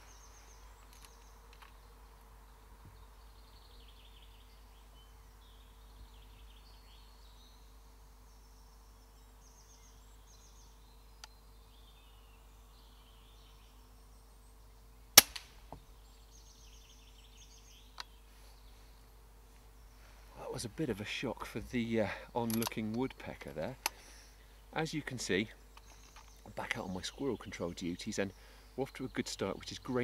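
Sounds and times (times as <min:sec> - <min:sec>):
faint steady hum: 0:00.0 - 0:30.0
small birds trilling: 0:00.0 - 0:30.0
air rifle shot: 0:15.2 - 0:15.6.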